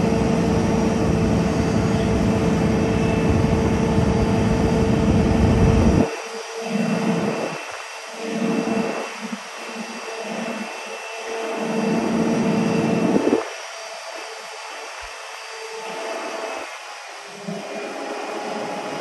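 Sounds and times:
hydraulic machine hum with whine: 0:00.0 - 0:19.0.

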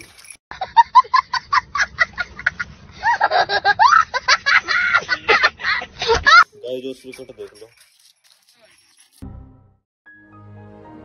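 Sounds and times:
young child giggling and laughing: 0:00.5 - 0:06.5.

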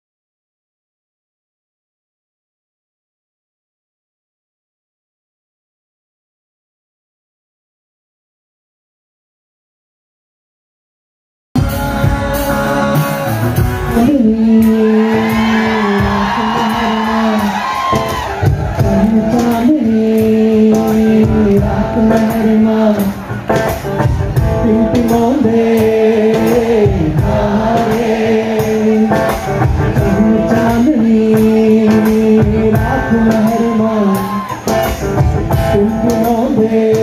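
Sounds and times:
man singing: 0:11.6 - 0:23.7, 0:24.5 - 0:34.9, 0:35.5 - 0:37.0.

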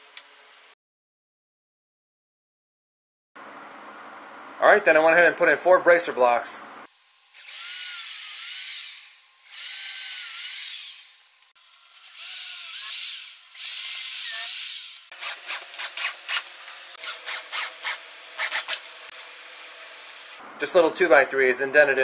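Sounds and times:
short sharp drill strokes: 0:07.4 - 0:11.3, 0:11.9 - 0:18.9
power drill driving screws: 0:07.4 - 0:18.9.

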